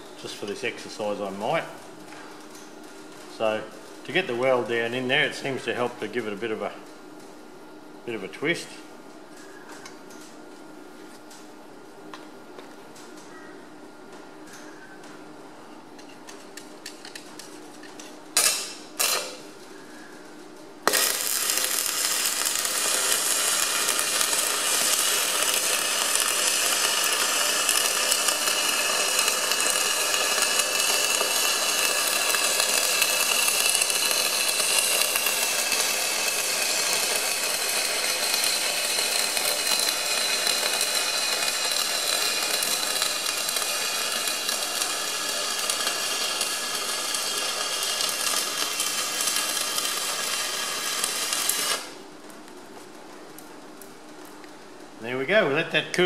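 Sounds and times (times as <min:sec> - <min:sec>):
welding arc buzzing: 0:16.0 - 0:19.6, 0:20.8 - 0:52.3.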